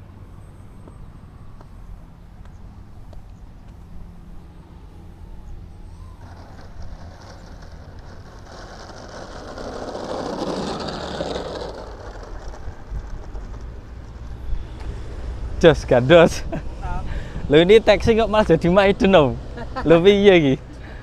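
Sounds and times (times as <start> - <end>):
wind rumbling on microphone: 5.5 - 18.5.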